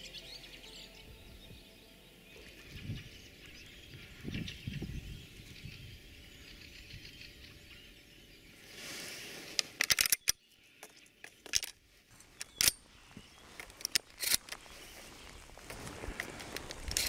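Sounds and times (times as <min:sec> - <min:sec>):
shotgun shells clicking into magazine: 0:09.6 - 0:11.8, 0:12.4 - 0:12.8, 0:13.6 - 0:14.6.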